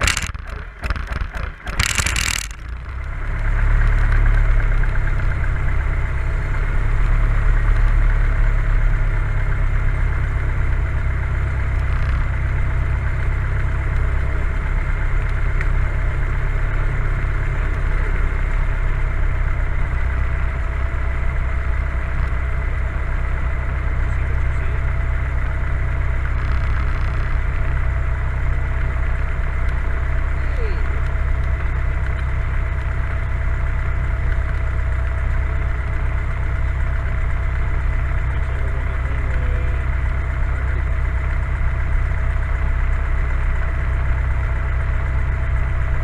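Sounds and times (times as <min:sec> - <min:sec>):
aircraft engine starter cranking: 0:00.0 - 0:02.8
aircraft engine idling: 0:00.0 - 0:46.0.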